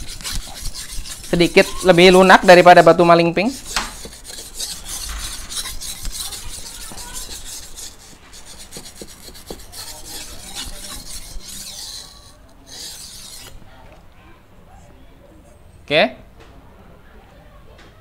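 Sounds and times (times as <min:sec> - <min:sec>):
blade scraping on wet whetstone: 0:00.0 - 0:13.7.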